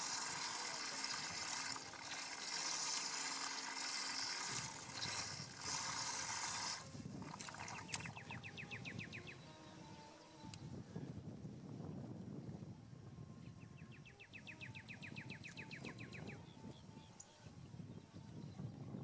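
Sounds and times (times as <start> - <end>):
electric motor whirring: 0.0 - 10.7.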